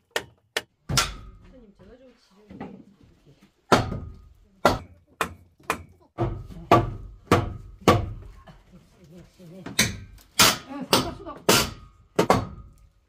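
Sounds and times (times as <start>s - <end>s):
hammer blows on wooden boards: 3.7s - 8.3s, 9.7s - 12.8s.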